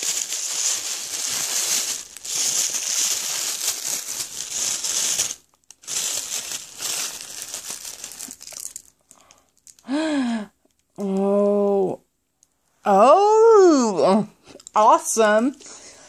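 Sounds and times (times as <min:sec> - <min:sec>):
wrapping paper crinkling and tearing: 0:00.0 - 0:10.0.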